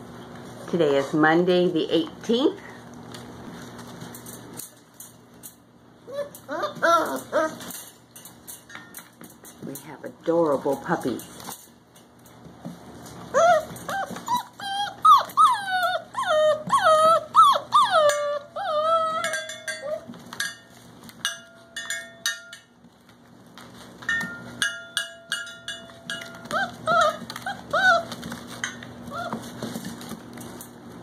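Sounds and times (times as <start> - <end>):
puppies whining and yelping: 6.0 - 8.0, 13.0 - 20.3, 26.1 - 30.2.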